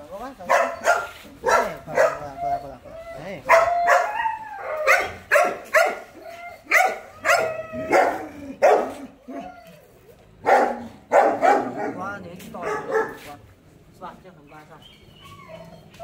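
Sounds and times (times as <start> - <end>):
dogs barking: 0.4 - 9.5, 10.4 - 13.4.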